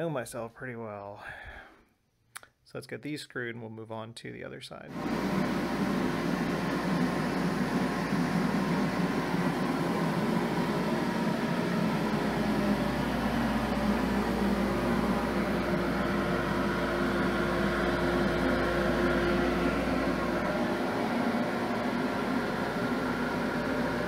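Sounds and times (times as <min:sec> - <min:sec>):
dust collector humming: 0:04.9 - 0:24.0.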